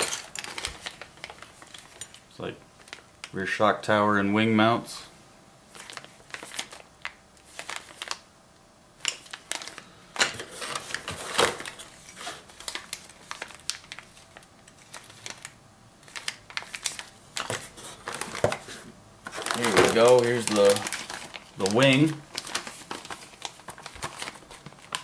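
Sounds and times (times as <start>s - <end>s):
plastic bags crinkling: 0.0s - 3.5s, 5.7s - 8.3s, 9.0s - 25.0s.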